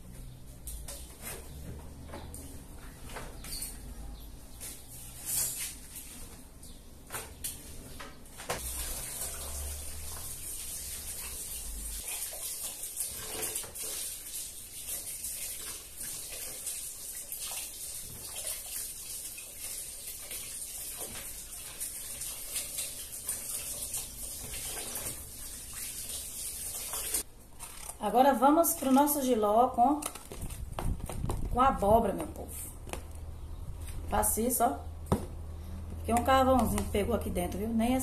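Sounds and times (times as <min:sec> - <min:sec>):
tap water running into a bucket: 0:08.6 - 0:27.3.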